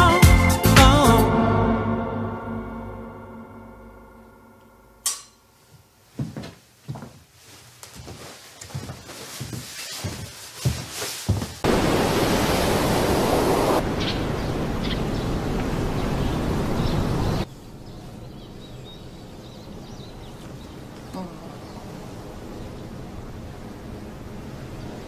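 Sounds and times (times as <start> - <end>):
steady rushing noise: 11.6 - 17.5.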